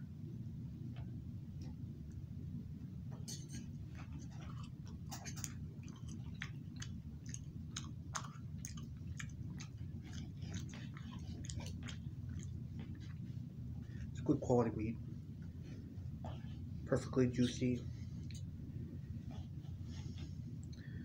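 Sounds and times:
steady low hum: 0.0s - 21.0s
man chewing: 3.6s - 14.2s.

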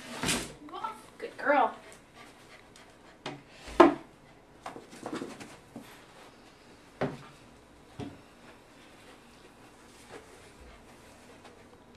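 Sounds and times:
rubbing and handling noise: 4.7s - 11.9s
knocks and thumps: 7.0s - 7.3s.

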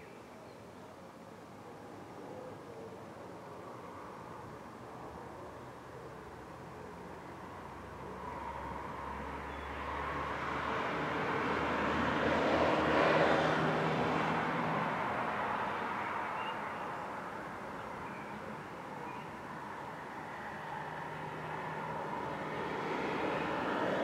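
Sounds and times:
vehicle passing: 7.6s - 17.6s, 19.4s - 24.0s.

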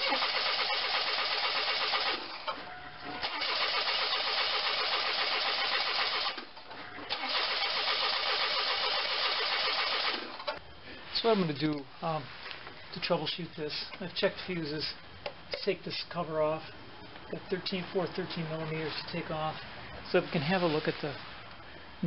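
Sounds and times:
car starter cranking: 0.0s - 2.5s, 3.1s - 6.4s, 7.1s - 10.6s.

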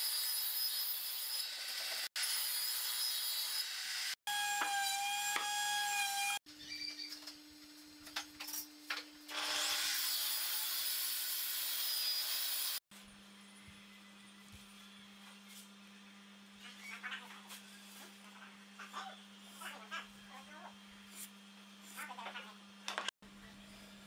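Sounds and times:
table saw cutting wood: 0.0s - 6.4s, 9.3s - 12.8s.

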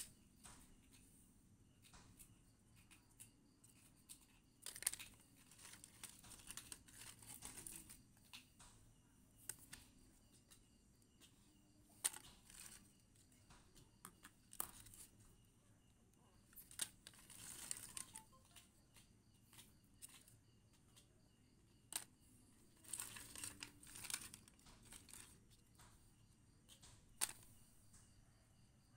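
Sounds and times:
wood chips clicking and rustling: 3.7s - 8.5s, 11.9s - 13.5s, 16.5s - 18.7s, 19.5s - 20.4s, 21.9s - 25.9s, 26.7s - 27.6s.

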